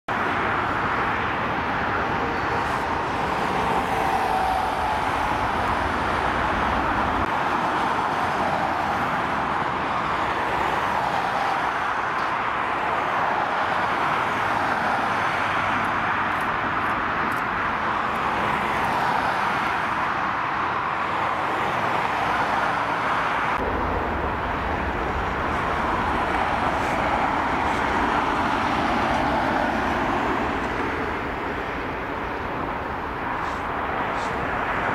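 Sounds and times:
jet engines running: 0:23.6 - 0:34.9.

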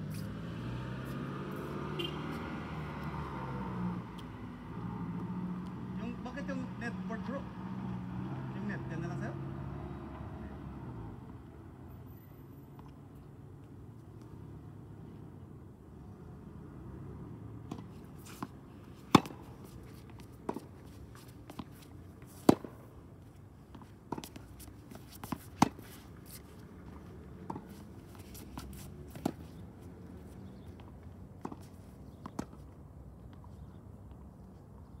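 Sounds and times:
tennis balls struck by rackets: 0:17.6 - 0:32.8.

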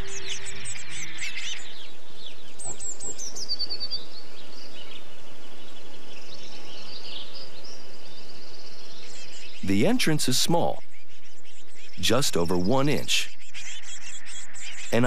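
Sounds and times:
bird singing high notes and trill: 0:00.0 - 0:15.0
faint bird calls: 0:00.0 - 0:15.0
nestlings begging chirps: 0:00.0 - 0:15.0.

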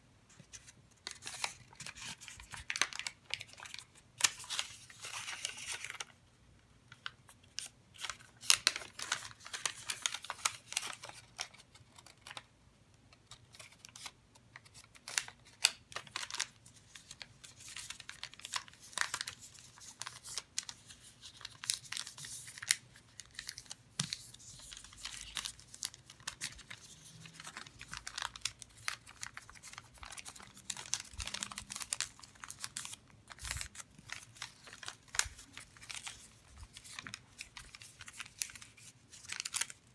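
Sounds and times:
paper rustling and crinkling: 0:00.3 - 0:06.2, 0:06.9 - 0:12.5, 0:13.3 - 0:39.9.

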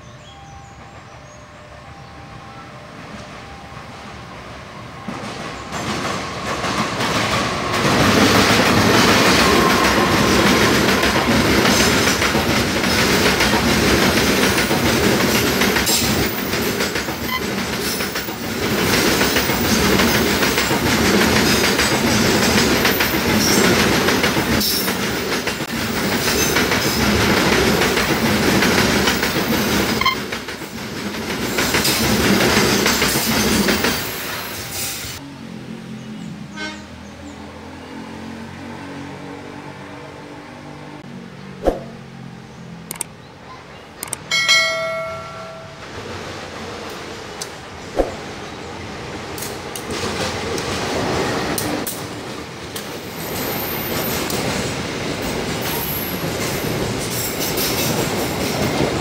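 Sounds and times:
diesel locomotive passing: 0:00.0 - 0:59.0
train wheels clattering over rail joints: 0:05.7 - 0:34.9, 0:49.3 - 0:59.0.

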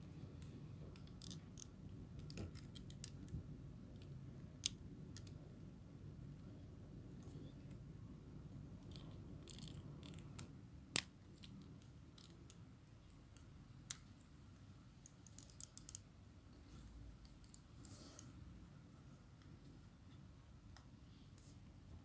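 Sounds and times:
plastic figure parts clicking: 0:00.4 - 0:03.4, 0:08.8 - 0:14.2, 0:15.0 - 0:16.1.

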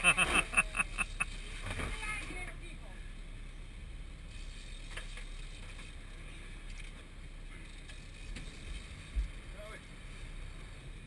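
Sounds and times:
water noise: 0:00.0 - 0:01.7
boat engine rumble: 0:00.0 - 0:11.0.

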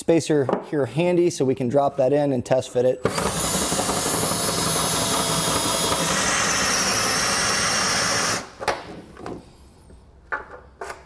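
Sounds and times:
cordless drill drilling metal: 0:03.0 - 0:08.5.

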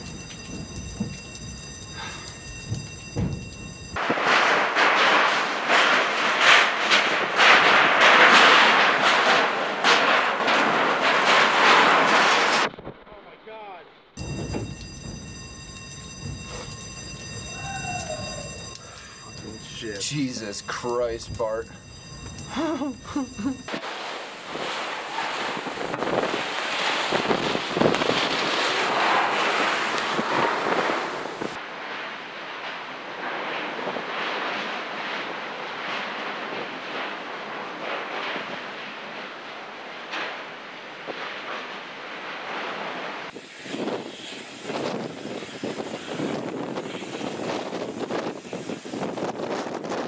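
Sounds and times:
loud gusty wind: 0:00.0 - 0:13.0, 0:14.2 - 0:50.0
sharp hits: 0:02.1 - 0:13.2, 0:13.9 - 0:31.5
wind gusts buffeting microphone: 0:14.2 - 0:31.6, 0:43.2 - 0:50.0
strong wind rushing: 0:23.6 - 0:31.6.

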